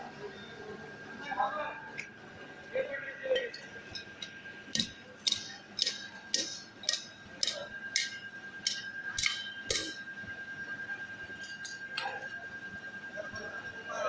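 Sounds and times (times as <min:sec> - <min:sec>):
steady high whine: 0:00.0 - 0:14.0
hammer striking metal on anvil: 0:04.7 - 0:10.0.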